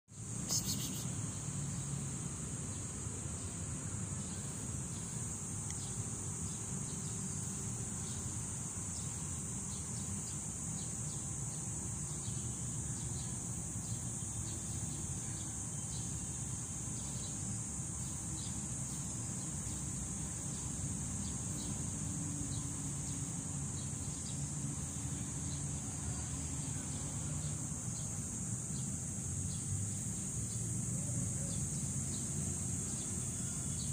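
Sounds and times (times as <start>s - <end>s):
insects shrilling: 0.2s - 1.5s.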